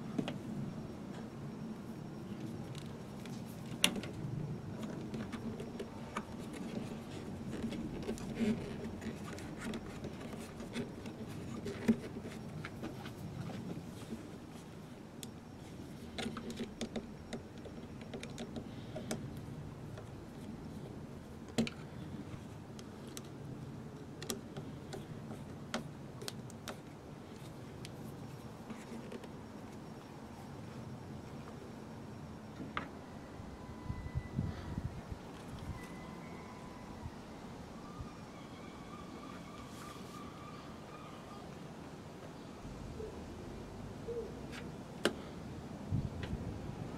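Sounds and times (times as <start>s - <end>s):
low steady hum: 0.0s - 46.9s
small clicks and scrapes: 2.4s - 20.9s, 24.0s - 30.1s.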